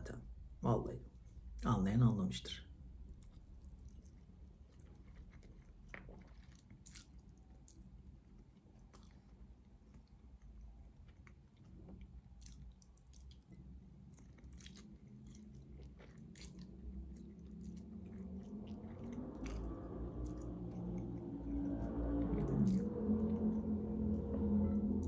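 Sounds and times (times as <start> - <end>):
low hum: 0.0 - 25.0
chewing with wet smacks: 3.0 - 25.0
spaghetti being slurped: 8.6 - 23.8.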